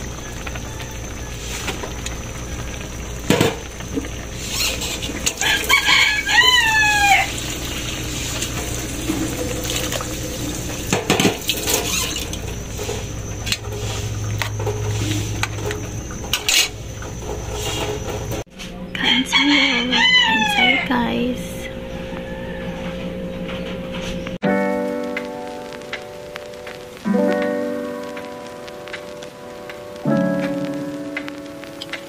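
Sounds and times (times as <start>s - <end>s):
rooster crowing: 0.0s - 2.7s, 5.4s - 7.8s, 18.9s - 23.7s.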